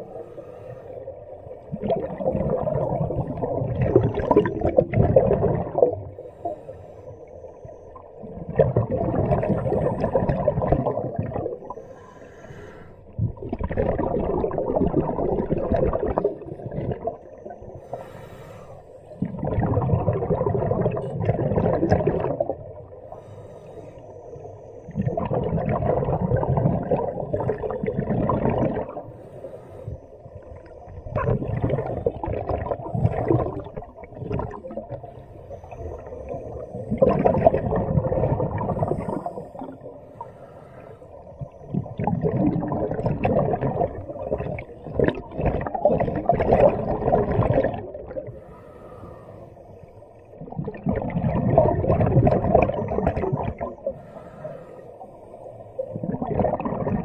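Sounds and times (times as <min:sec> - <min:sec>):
diver breathing through regulator: 0:00.0 - 0:01.2, 0:06.1 - 0:07.4, 0:11.6 - 0:13.2, 0:17.8 - 0:19.2, 0:23.0 - 0:24.4, 0:29.0 - 0:30.2, 0:38.6 - 0:41.6, 0:48.2 - 0:50.3, 0:53.8 - 0:56.0
exhaled bubbles rushing: 0:01.1 - 0:06.2, 0:07.5 - 0:11.9, 0:13.1 - 0:18.1, 0:19.1 - 0:23.4, 0:24.5 - 0:29.2, 0:30.2 - 0:40.2, 0:41.1 - 0:48.5, 0:50.1 - 0:54.2, 0:55.4 - 0:57.0.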